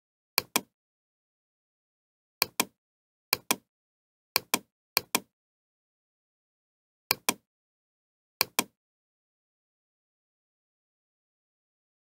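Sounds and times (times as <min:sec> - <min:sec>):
mouse button clicks: 0:02.4 - 0:02.8, 0:07.1 - 0:07.4, 0:08.4 - 0:08.8.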